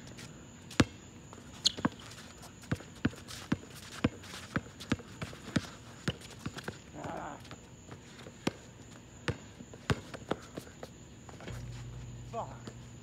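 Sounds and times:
basketball bouncing on asphalt: 0.7 - 1.0, 1.6 - 7.6, 8.2 - 11.8.

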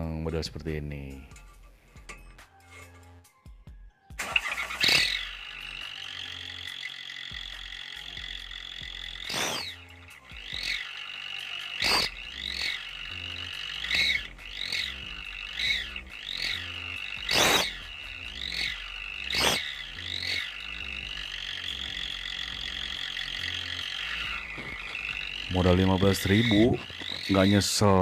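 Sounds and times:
exhaust whistle: 4.2 - 28.0.

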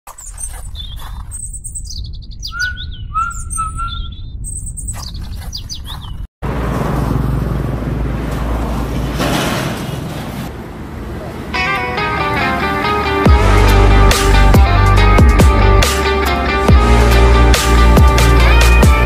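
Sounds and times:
birds chirping: 0.1 - 6.3.

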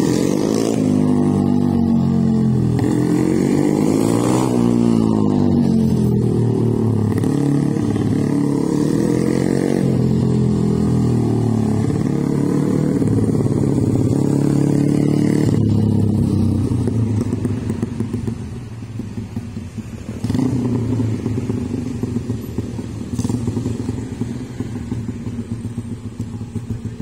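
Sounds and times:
small motorcycle engine revving: 0.0 - 18.4.

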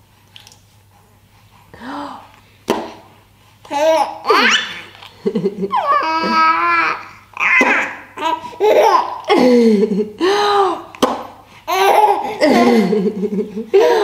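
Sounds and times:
baby laughing in squealing bursts: 3.8 - 4.9.

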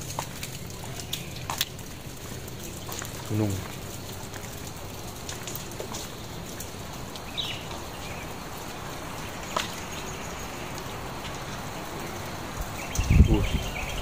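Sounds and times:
wind noise: 10.4 - 14.0.

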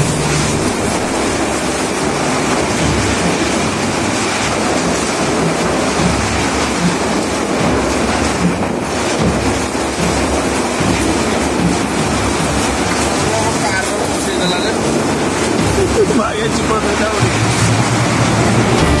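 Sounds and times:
heavy rain: 0.0 - 19.0
strong wind roaring: 12.6 - 19.0.

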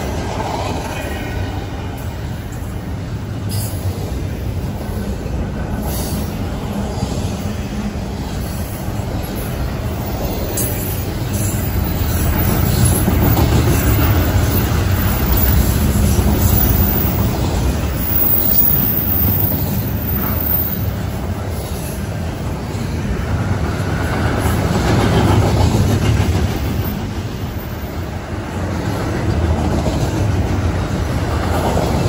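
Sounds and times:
freight train rumbling on rails: 0.0 - 32.0.

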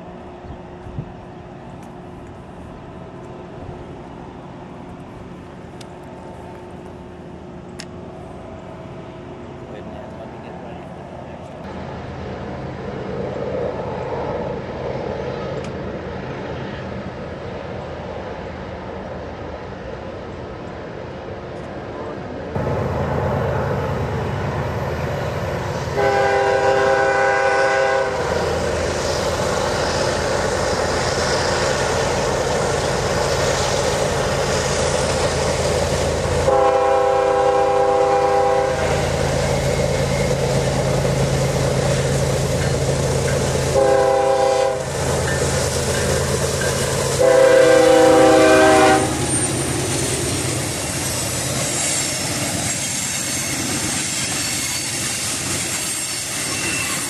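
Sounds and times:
diesel locomotive engines running: 0.0 - 57.0
multi-tone train air horn: 25.9 - 28.4, 36.4 - 39.0, 43.7 - 44.9, 47.2 - 49.3.

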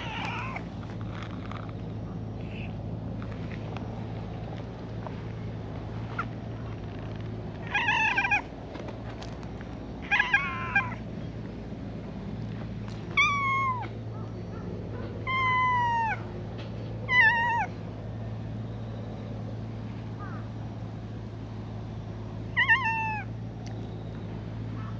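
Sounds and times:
cat meowing: 0.0 - 0.7, 7.6 - 8.5, 10.0 - 11.0, 13.1 - 13.9, 15.2 - 16.2, 17.1 - 17.7, 22.6 - 23.3.

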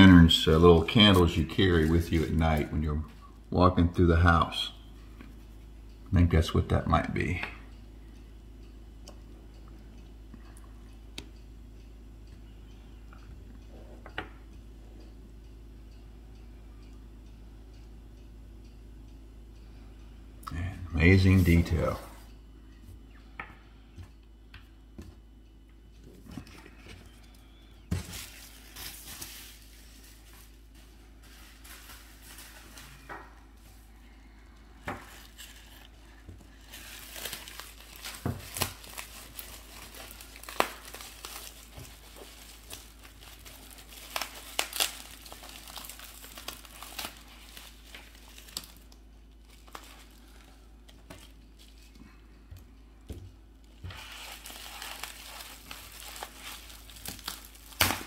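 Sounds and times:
bubble wrap crinkling: 0.0 - 2.9, 26.4 - 33.9, 35.0 - 52.0, 53.6 - 58.0.

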